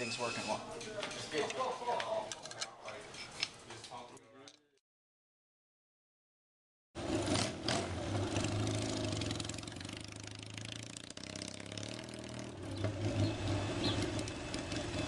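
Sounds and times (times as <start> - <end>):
motorcycle engine accelerating: 7.0 - 15.0.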